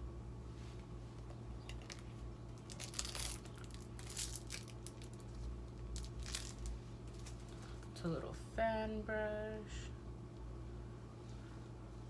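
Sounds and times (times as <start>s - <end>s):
low steady hum: 0.0s - 12.0s
plastic wrapper crinkling: 1.7s - 7.9s.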